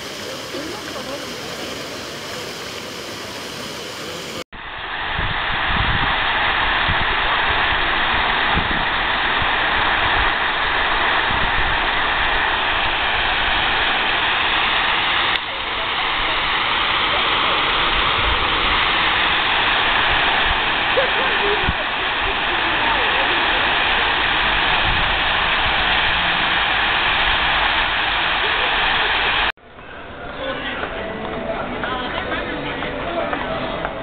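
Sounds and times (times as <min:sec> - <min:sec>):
water cascading into pool: 0:00.0 - 0:29.5
jet fountain splashing: 0:00.0 - 0:34.0
wind rumble on microphone: 0:04.6 - 0:13.8, 0:24.2 - 0:26.5.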